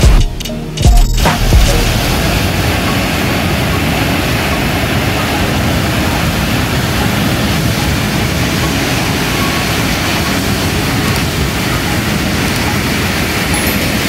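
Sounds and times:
waterfall rushing: 0:01.3 - 0:14.0.

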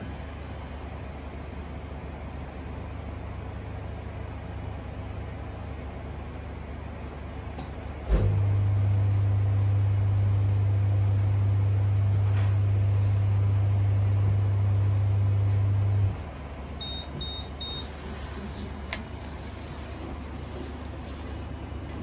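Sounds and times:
microwave oven humming: 0:00.0 - 0:22.0
click: 0:07.6 - 0:07.8, 0:12.1 - 0:12.4, 0:15.9 - 0:16.1, 0:18.9 - 0:19.1.

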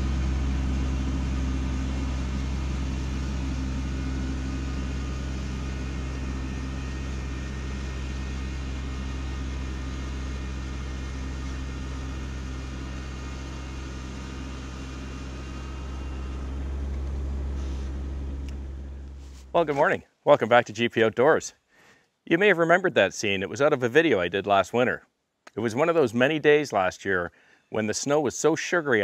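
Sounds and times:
tractor diesel engine running: 0:00.0 - 0:20.6.

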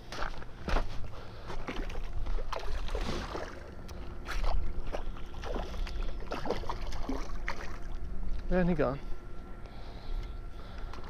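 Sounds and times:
fish splashing in water: 0:01.6 - 0:08.0.

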